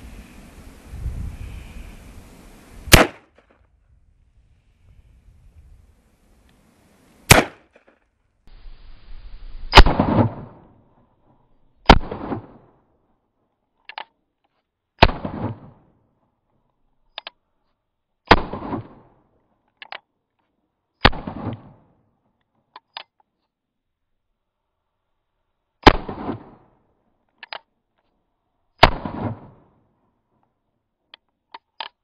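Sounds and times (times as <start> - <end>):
revolver gunshots with echo: 2.9 - 3.3, 7.3 - 7.8, 11.9 - 12.6, 15.0 - 15.8, 18.3 - 19.0, 21.0 - 21.7, 25.8 - 26.6, 28.8 - 29.6.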